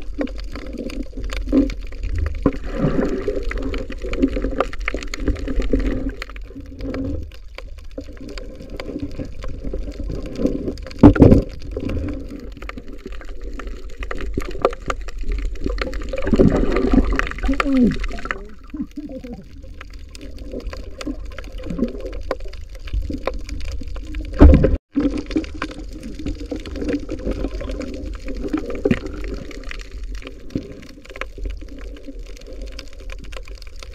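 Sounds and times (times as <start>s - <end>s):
small underwater clicks: 0.0s - 33.9s
muffled underwater gurgling: 15.2s - 32.7s.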